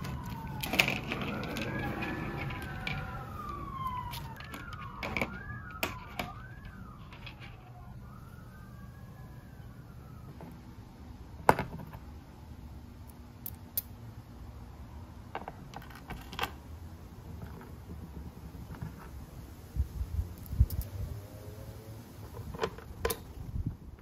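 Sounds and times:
emergency siren wailing: 0.0s - 10.7s.

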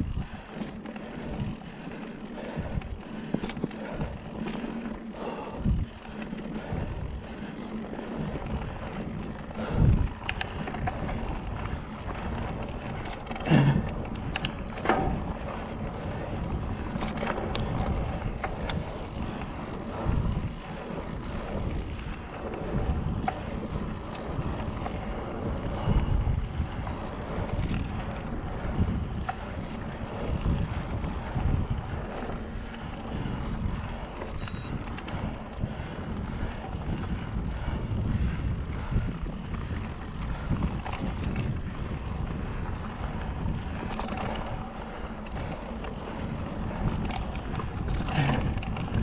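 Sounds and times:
wind buffeting microphone: 0.0s - 49.0s
bike knocks and rattles: 9.6s - 19.2s, 46.1s - 49.0s.

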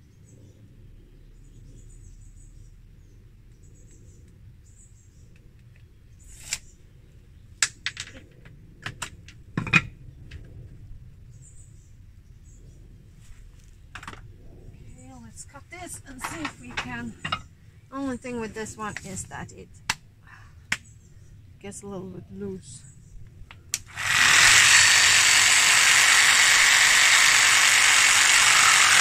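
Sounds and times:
faint bird chirps: 0.0s - 5.4s.

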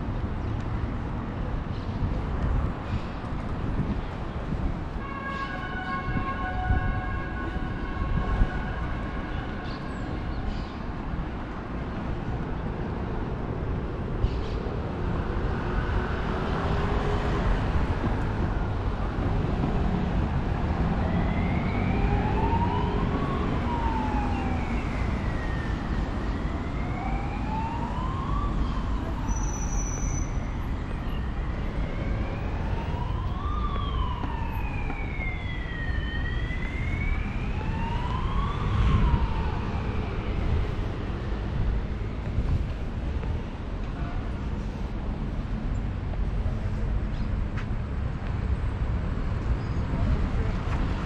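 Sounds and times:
city traffic rumble: 0.0s - 51.0s
emergency siren wailing: 5.0s - 9.6s, 15.6s - 42.8s.

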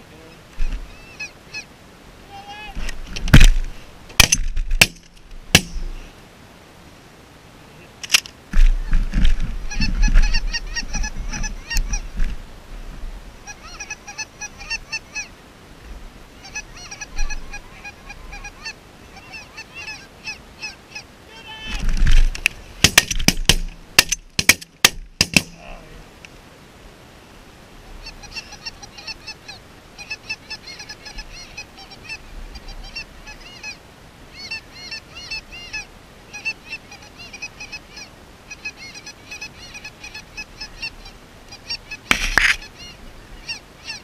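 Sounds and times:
geese honking: 0.0s - 1.7s, 9.6s - 12.2s, 13.4s - 15.4s, 16.4s - 21.8s, 27.9s - 44.0s
sharp loud cracks: 4.2s - 6.0s, 22.8s - 25.6s.

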